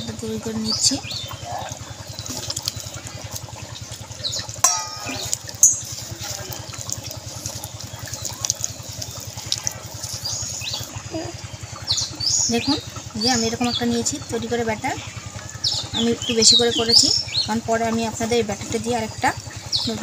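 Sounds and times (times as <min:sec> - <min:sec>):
engine idling: 0:00.0 - 0:20.0
batter squelching in a bowl: 0:01.6 - 0:11.1.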